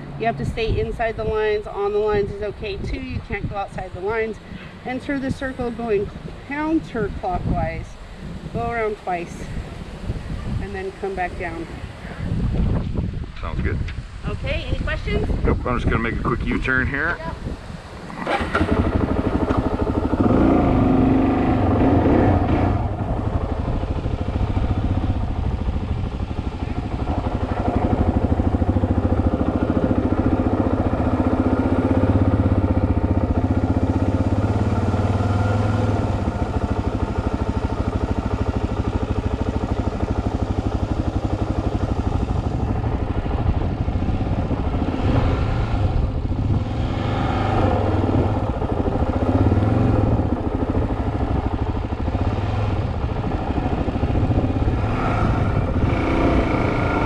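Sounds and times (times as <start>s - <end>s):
motorcycle engine running slowly: 0.0s - 57.0s.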